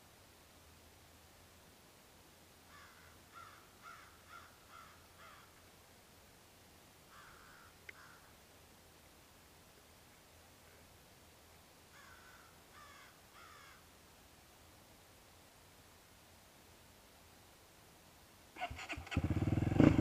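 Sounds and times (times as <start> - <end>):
bird calling faintly: 2.7 - 5.6, 7.1 - 8.4, 11.9 - 13.9.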